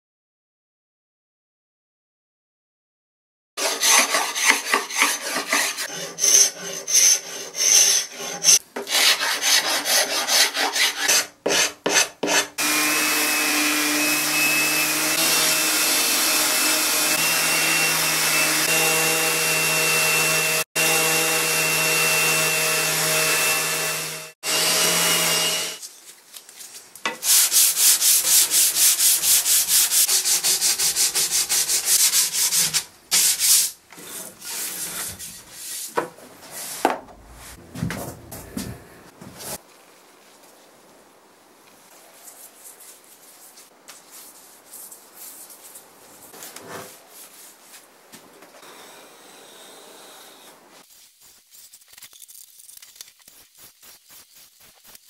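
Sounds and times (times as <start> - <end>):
hand sanding strokes: 3.6 - 20.6, 27.2 - 36.8, 41.9 - 47.9, 53.3 - 55.0
hand scraper scraping wood: 3.6 - 20.9, 27.1 - 36.9, 46.3 - 47.0
orbital sander running: 12.6 - 25.8.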